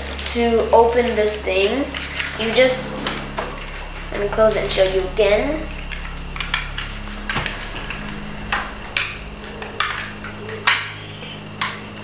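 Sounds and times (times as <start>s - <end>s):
faint low hum: 0.0s - 12.0s.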